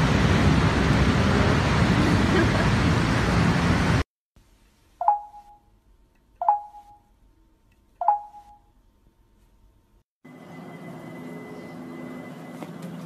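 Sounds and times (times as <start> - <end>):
bell-like ding: 5.0 - 5.6, 6.4 - 7.0, 8.0 - 8.6.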